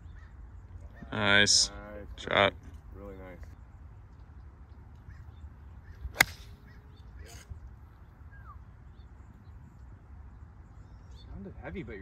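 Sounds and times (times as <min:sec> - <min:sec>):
golf club striking ball: 0:06.1 - 0:06.7.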